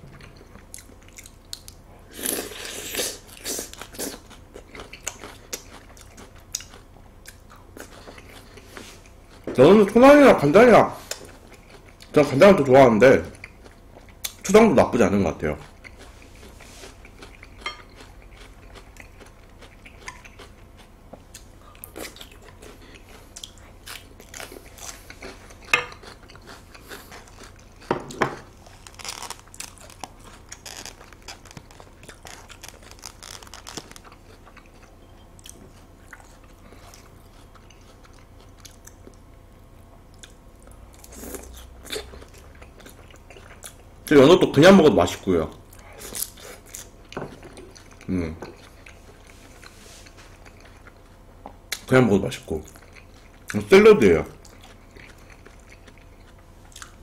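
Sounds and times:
chewing raw fish: 0.2s - 9.8s, 15.5s - 39.3s, 45.6s - 53.7s, 54.3s - 57.0s.

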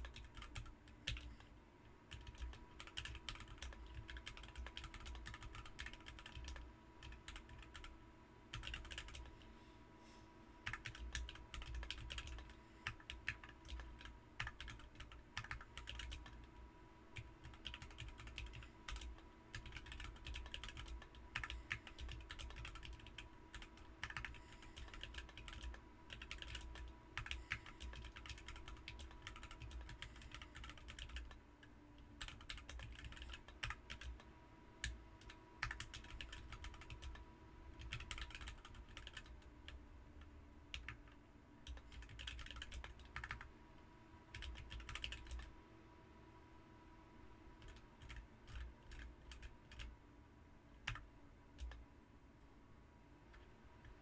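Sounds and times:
mechanical keyboard typing: 0.0s - 1.4s, 2.1s - 9.4s, 10.6s - 16.5s, 17.2s - 31.4s, 32.2s - 37.2s, 37.8s - 39.8s, 40.7s - 43.5s, 44.3s - 45.5s, 47.6s - 49.9s, 50.8s - 51.0s, 51.6s - 51.8s.

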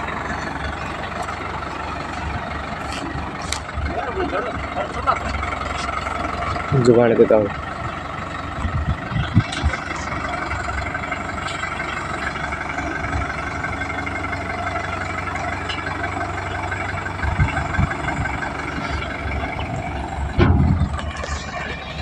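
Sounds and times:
tractor diesel engine running: 0.0s - 22.0s
low knocks: 20.2s - 21.2s.

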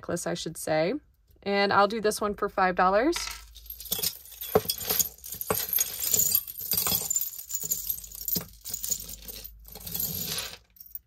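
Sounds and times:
metal necklaces clinking: 3.4s - 11.0s.

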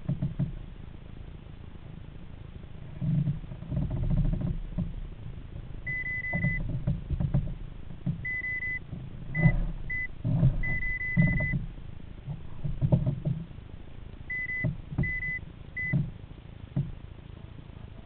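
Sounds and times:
thumps and knocks in a kayak: 0.0s - 18.0s
electronic device beeping: 5.9s - 6.6s, 8.2s - 8.8s, 9.4s - 11.6s, 14.3s - 16.0s.

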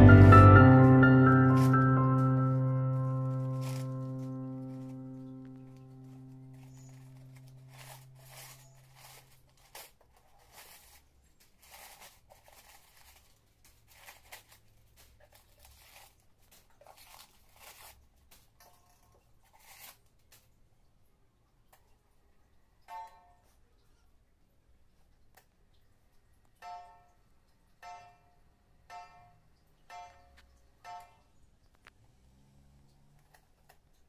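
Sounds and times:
crumpled paper rustling: 1.2s - 20.6s.

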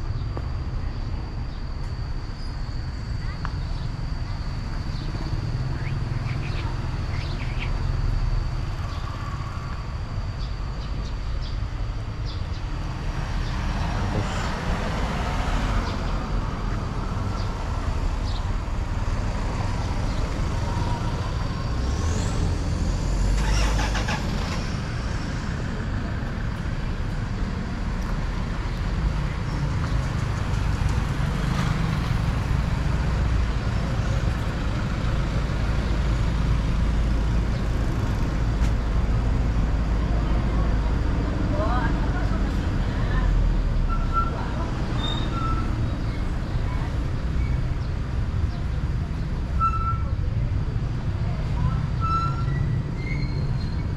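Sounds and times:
traffic rumble: 0.0s - 53.9s
vehicle passing: 18.9s - 26.4s.

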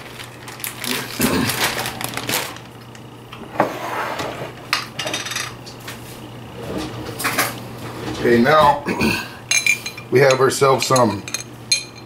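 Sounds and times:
glass jars knocking and clinking: 9.5s - 12.0s.

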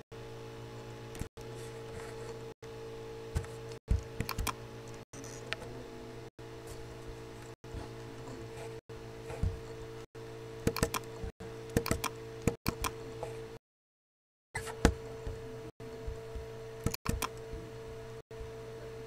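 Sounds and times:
electrical hum: 0.0s - 13.6s, 14.6s - 19.0s
keyboard keys clicking: 10.7s - 11.1s.

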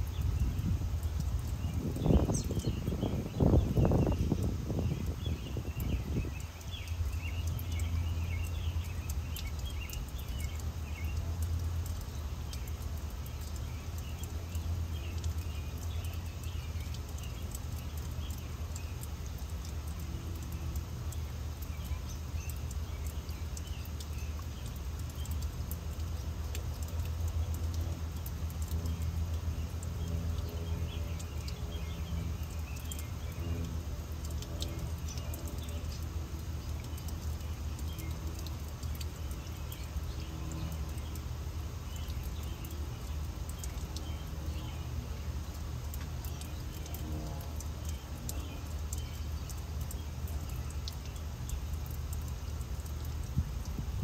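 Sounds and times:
wind rumble on microphone: 0.0s - 6.6s, 53.2s - 54.0s
fountain water splashing: 0.0s - 54.0s
small birds chirping: 0.0s - 54.0s.

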